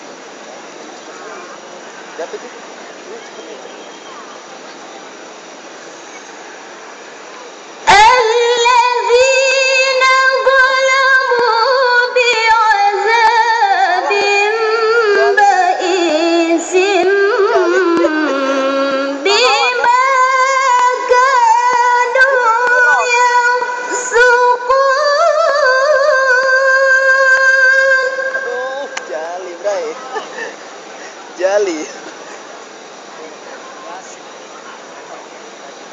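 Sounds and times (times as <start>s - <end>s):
woman reciting melodically over loudspeakers: 7.8s - 28.6s.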